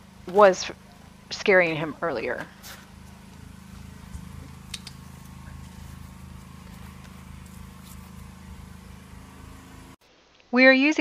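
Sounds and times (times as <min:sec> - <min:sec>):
pressure washer engine drone: 0:00.0 - 0:10.0
faint clicks and rustles: 0:02.3 - 0:08.9.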